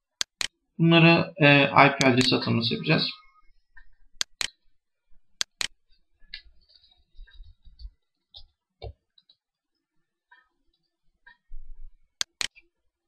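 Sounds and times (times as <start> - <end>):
computer mouse clicks: 0.2 - 0.6, 3.8 - 4.6, 5.4 - 6.5, 12.2 - 12.6.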